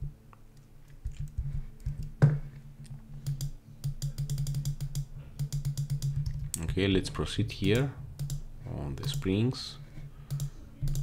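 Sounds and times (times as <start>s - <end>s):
keyboard and mouse clicking: 3.2s - 6.7s, 7.6s - 8.4s, 9.0s - 9.3s, 10.3s - 11.0s.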